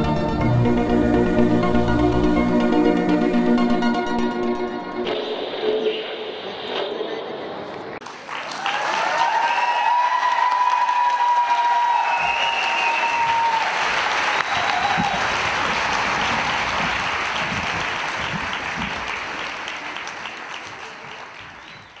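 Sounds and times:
audience applauding: 8.0s - 22.0s
long whistle-like tone: 12.0s - 13.4s.

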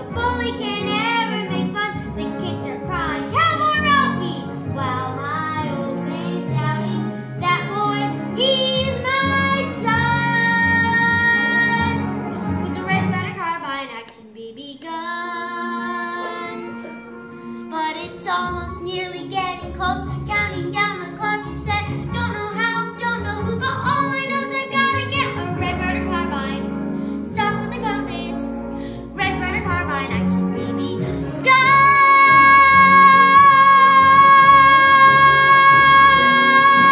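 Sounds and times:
instrumental accompaniment: 0.0s - 13.6s, 15.1s - 36.9s
boy singing: 12.6s - 16.8s, 29.2s - 36.9s.

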